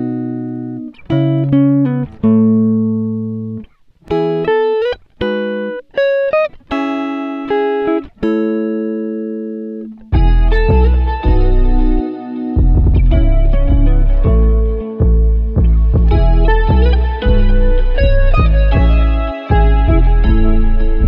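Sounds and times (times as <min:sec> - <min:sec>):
deep bass: 0:10.2 - 0:12.0, 0:12.6 - 0:21.0.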